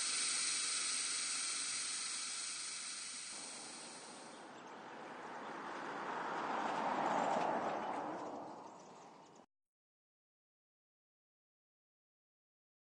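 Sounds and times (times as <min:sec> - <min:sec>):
steady high hiss: 0:00.0 - 0:04.4.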